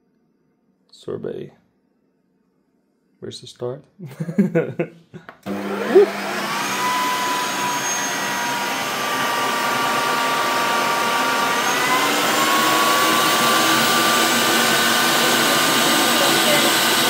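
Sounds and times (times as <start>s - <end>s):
ice cream maker motor whirring: 5.4s - 17.0s.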